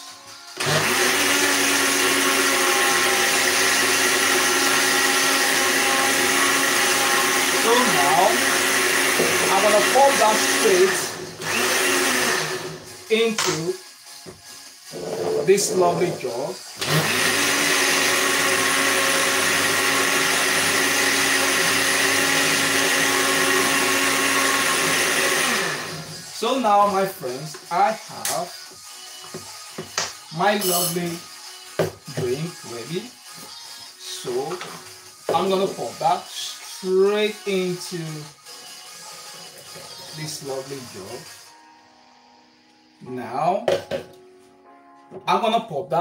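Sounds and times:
blender running: 0.5s - 13.6s, 14.8s - 27.0s, 30.4s - 41.5s.

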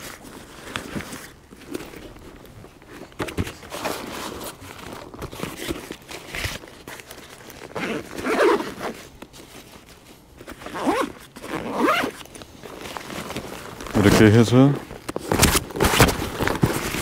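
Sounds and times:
fabric rustling: 0.0s - 17.0s
zipper being pulled shut: 7.7s - 9.1s, 10.4s - 12.3s.

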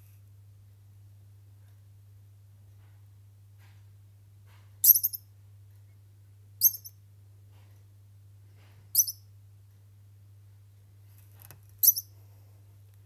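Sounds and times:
faint low hum: 0.0s - 13.0s
degu squeaks: 4.8s - 5.2s, 6.6s - 6.9s, 9.0s - 9.2s, 11.8s - 12.1s.

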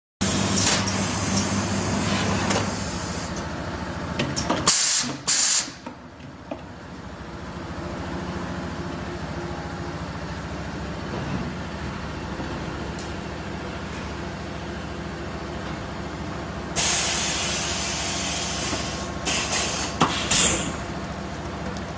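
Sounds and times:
compressed air hisses: 4.7s - 5.8s, 16.8s - 20.8s
bottle blowing machine humming: 16.7s - 21.8s.

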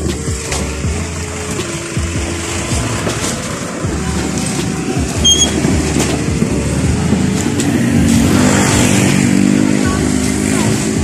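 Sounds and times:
vehicle engine running: 0.0s - 11.0s
short high chirp: 5.2s - 5.6s.

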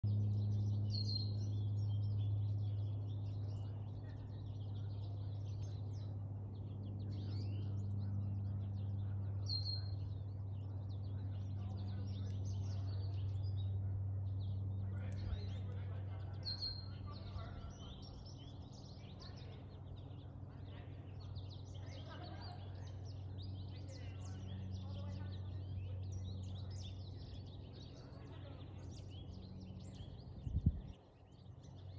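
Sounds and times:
airplane engine drone: 0.0s - 31.9s
small birds chirping: 0.0s - 31.9s.

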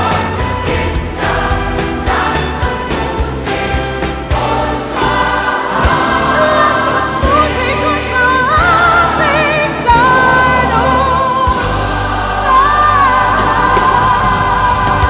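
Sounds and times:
band with orchestra: 0.0s - 15.0s
choir singing: 0.0s - 15.0s
low beats: 0.0s - 15.0s
woman singing with vibrato: 6.1s - 15.0s.

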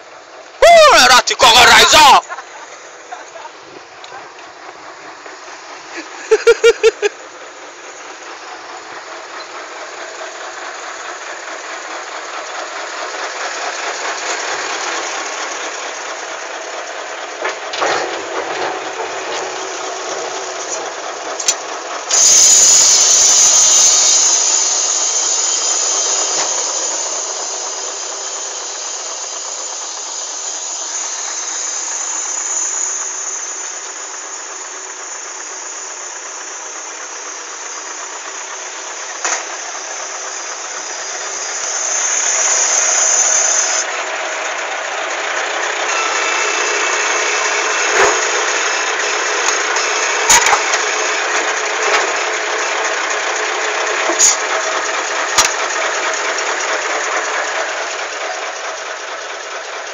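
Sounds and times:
heavy diesel engine running: 0.0s - 59.9s
loud hiss: 18.8s - 44.2s, 45.5s - 58.9s.

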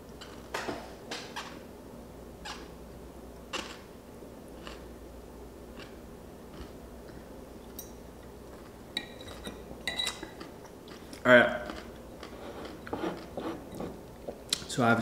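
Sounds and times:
chewing pickle crunches: 4.6s - 4.9s
fork clinking glass jar: 9.0s - 10.3s.

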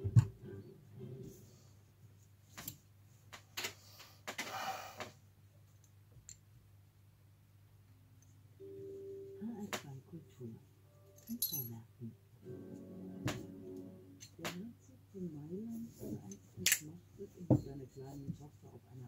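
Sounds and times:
faint steady tone: 8.2s - 12.2s.

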